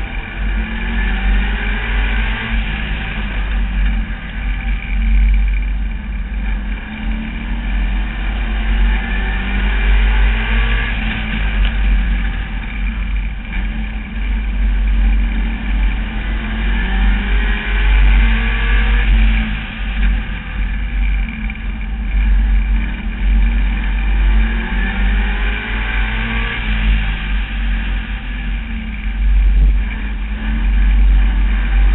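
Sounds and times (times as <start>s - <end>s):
heavy low rumble: 0.0s - 31.9s
race car engine accelerating: 0.0s - 31.9s.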